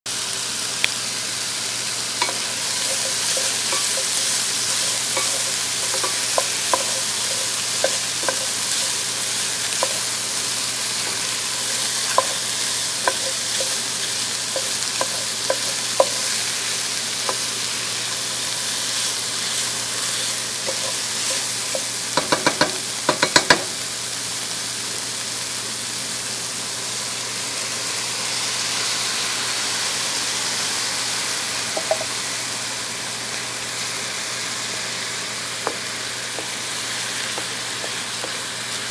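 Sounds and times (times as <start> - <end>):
food sizzling in a pot: 0.1 - 38.9
wooden spoon clacking against pot: 4.8 - 8.8, 13.0 - 13.8, 14.6 - 16.3, 20.7 - 23.7.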